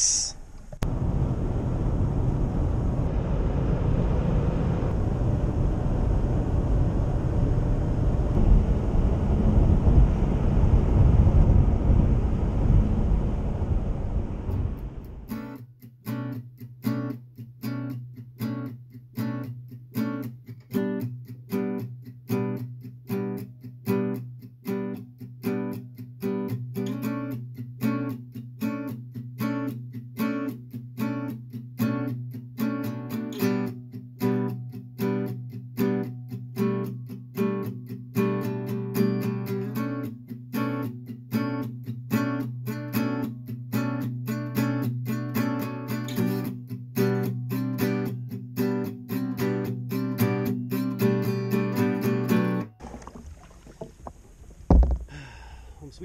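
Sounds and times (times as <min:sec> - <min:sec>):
acoustic guitar music: 0:15.2 - 0:55.0.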